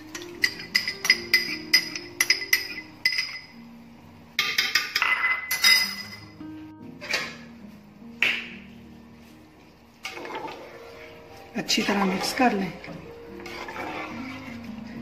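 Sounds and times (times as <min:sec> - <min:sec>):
soft background music: 0:00.0 - 0:15.0
glass clinking on metal pot: 0:00.1 - 0:03.6, 0:04.4 - 0:06.4.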